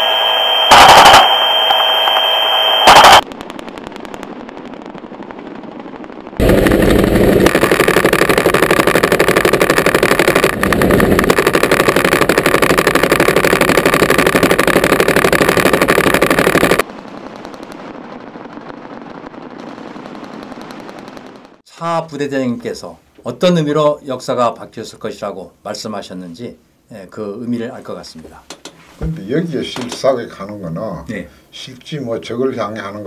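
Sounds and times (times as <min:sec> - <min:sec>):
loud noise with high tone: 0:00.0 - 0:03.2, 0:06.4 - 0:16.8
cannon firing rapid burst: 0:02.9 - 0:04.8, 0:06.4 - 0:21.6
helicopter engine and rotor: 0:06.5 - 0:16.8.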